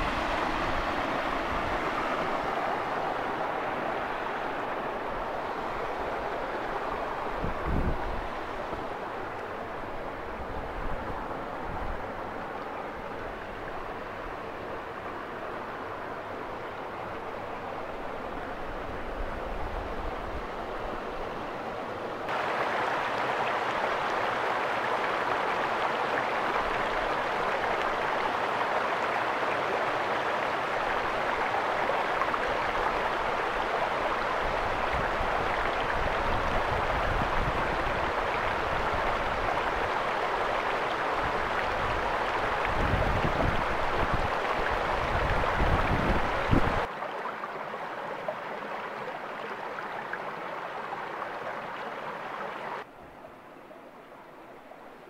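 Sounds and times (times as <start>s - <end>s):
wind gusts on microphone: 0.0s - 21.6s, 30.9s - 46.9s.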